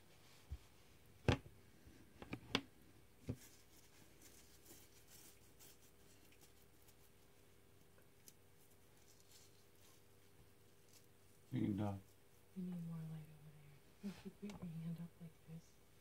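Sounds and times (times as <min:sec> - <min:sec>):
faint room hiss: 0:00.0 - 0:16.0.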